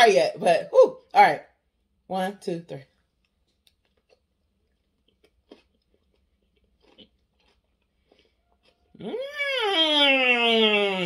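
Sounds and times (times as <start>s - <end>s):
chewing with wet mouth smacks: 3.2s - 9.1s.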